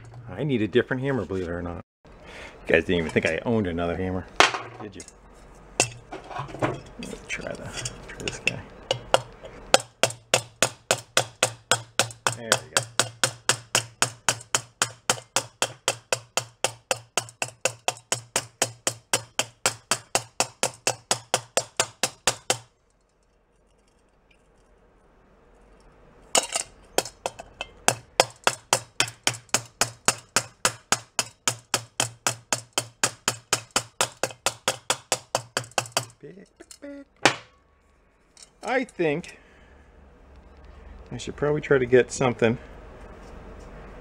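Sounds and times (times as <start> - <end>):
hammer tapping on metal: 7.8 - 22.7, 26.4 - 36.2.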